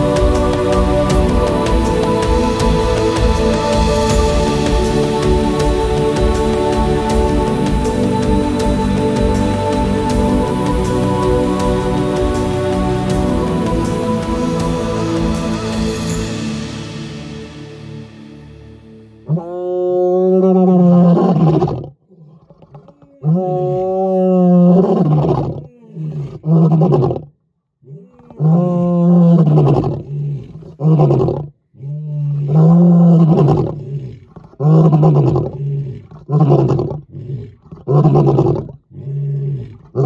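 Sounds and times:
lion roaring: 19.2 - 40.0.

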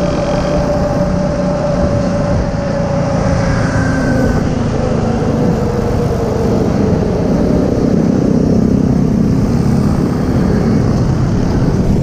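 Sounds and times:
motorcycle engine rumble: 0.0 - 12.0.

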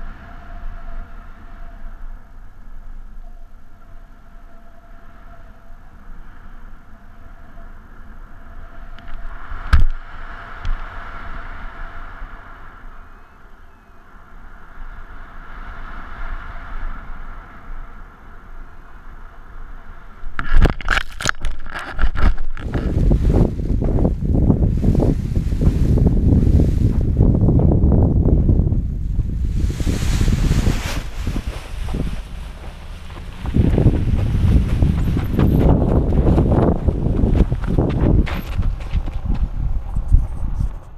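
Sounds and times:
wind rushing over microphone: 5.0 - 40.9
rough buffeting and rustling: 16.9 - 40.9.

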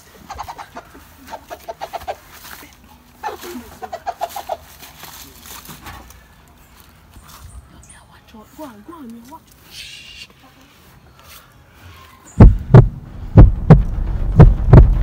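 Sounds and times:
chicken clucking: 0.0 - 2.4, 3.2 - 4.8.

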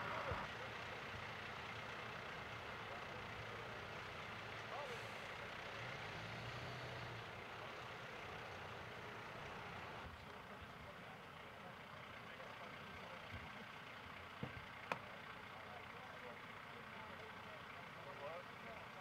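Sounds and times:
vehicle engines idling: 0.0 - 19.0.

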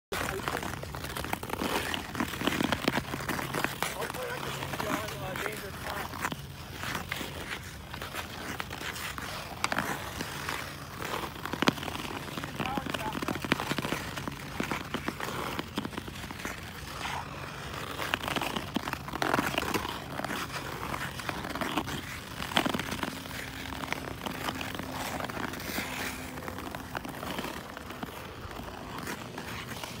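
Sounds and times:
ice crackles and clicks: 0.1 - 30.0
ice skate blades scraping ice: 0.1 - 30.0.

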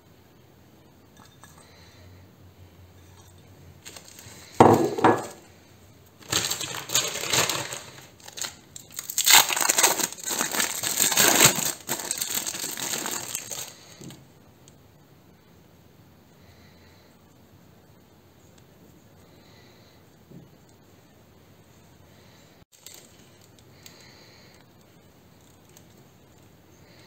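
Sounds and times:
plastic packet crinkling: 3.8 - 5.4, 6.2 - 14.1, 22.7 - 24.1.

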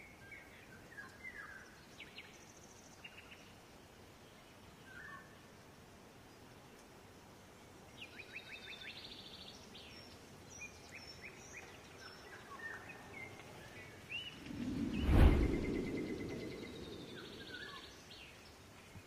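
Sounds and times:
small birds chirping: 6.2 - 19.0
low rushing whoosh: 14.4 - 17.8.

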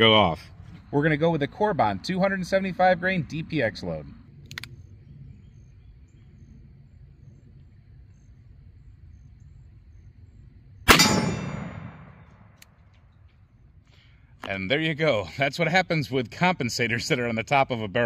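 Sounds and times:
gunshot echo: 10.9 - 12.6
revolver gunshot: 10.9 - 12.6.

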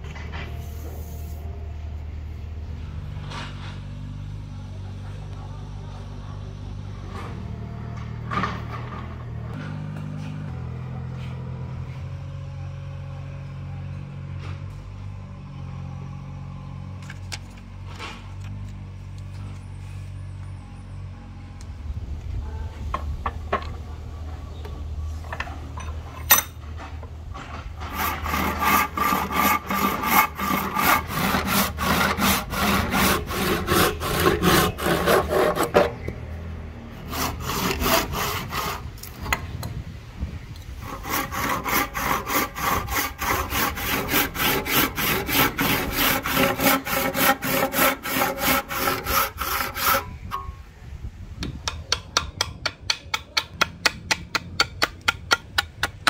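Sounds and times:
hand saw cutting wood: 26.8 - 36.2, 36.9 - 39.5, 40.8 - 50.5.

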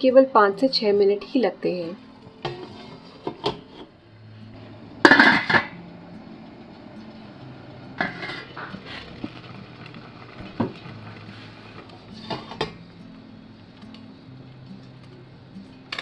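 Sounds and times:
metal pan clanking: 2.3 - 3.9, 5.0 - 5.8, 8.0 - 8.8, 12.1 - 12.8.

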